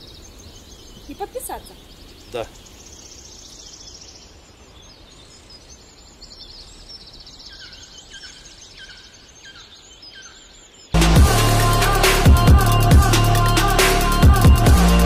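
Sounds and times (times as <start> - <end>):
songbirds trilling: 0.0 - 11.0.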